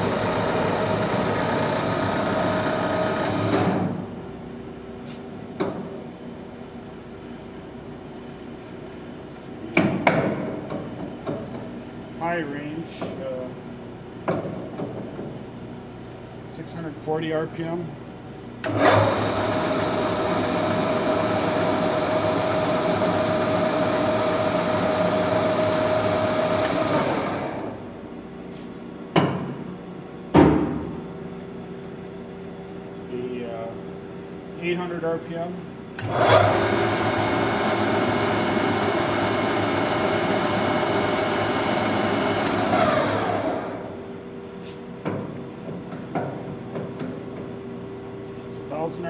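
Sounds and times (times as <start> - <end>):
lathe running with gear whine: 0.0 - 3.7, 18.7 - 27.7, 36.0 - 44.0.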